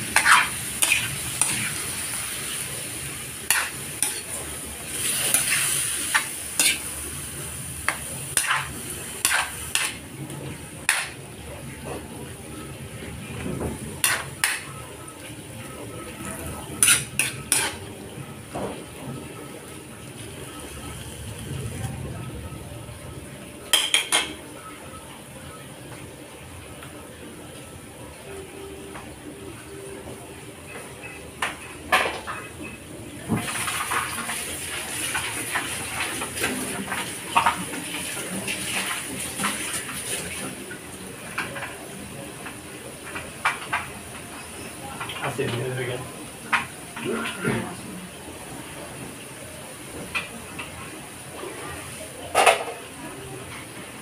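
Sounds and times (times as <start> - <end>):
meat sizzling in a wok: 0.0 - 10.2, 10.8 - 11.2, 16.8 - 17.8
frying sizzle: 0.0 - 54.0
metal spatula scraping wok: 0.1 - 1.8, 8.3 - 10.0, 16.8 - 17.8.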